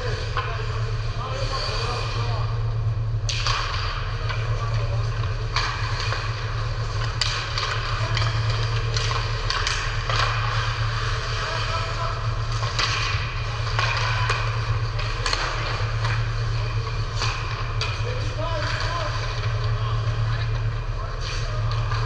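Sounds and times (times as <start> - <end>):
hockey sticks and puck clacking: 0.0 - 22.0
steady low hum: 0.0 - 22.0
skate scraping hiss: 1.3 - 2.4.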